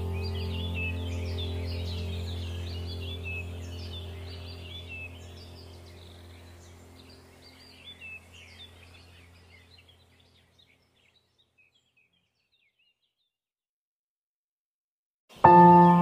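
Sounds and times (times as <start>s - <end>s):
low steady hum: 0.0s - 10.9s
small birds chirping: 0.0s - 13.4s, 15.3s - 16.0s.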